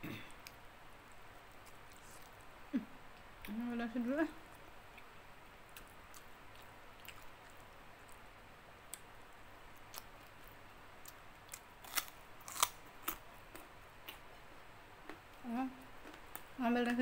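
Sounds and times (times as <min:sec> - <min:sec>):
crunchy chewing with mouth clicks: 0:00.2 - 0:02.5, 0:04.5 - 0:14.4.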